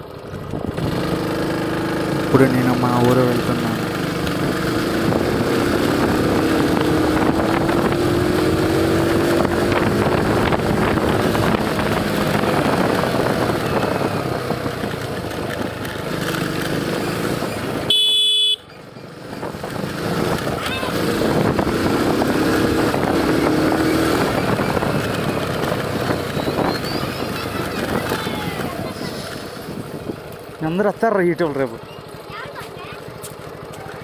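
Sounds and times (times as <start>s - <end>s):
small motorcycle engine accelerating: 0.0s - 34.0s
wind and road noise: 0.0s - 34.0s
short horn-like tone: 17.9s - 18.7s.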